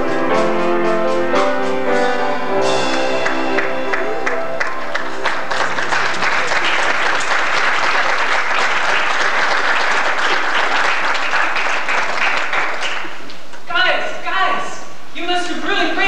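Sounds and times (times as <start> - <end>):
song ending: 0.0 - 6.3
audience applauding: 2.9 - 13.6.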